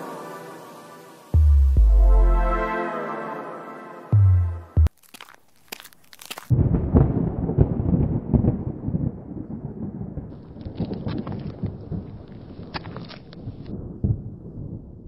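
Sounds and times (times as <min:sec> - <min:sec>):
crackles and ticks: 0:04.8 - 0:06.5, 0:10.3 - 0:13.8
wind buffeting microphone: 0:06.5 - 0:15.0.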